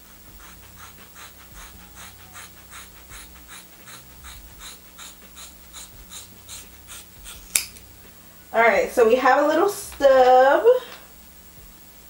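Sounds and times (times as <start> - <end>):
scissors snipping through hair: 2.0 - 7.9.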